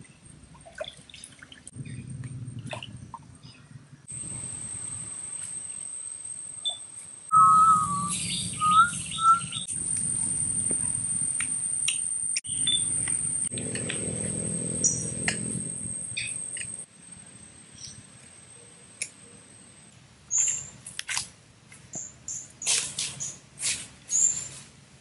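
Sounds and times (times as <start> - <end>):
low rumble: 1.7 - 5.1
bird chirping: 6.6 - 9.7, 12.4 - 13.2, 14.2 - 15.3, 16.1 - 16.8.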